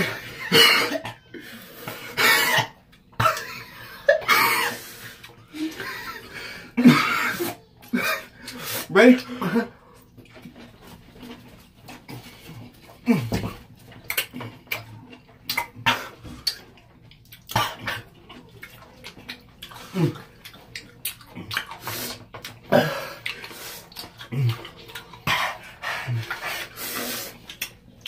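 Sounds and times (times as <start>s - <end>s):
people hissing and blowing air: 26.6s - 27.4s.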